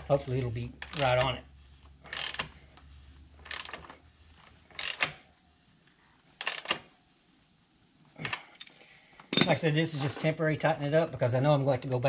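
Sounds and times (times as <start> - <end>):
ratchet wrench clicking: 0.8 - 1.4, 2.1 - 2.6, 3.4 - 4.0, 4.7 - 5.2, 6.4 - 6.8.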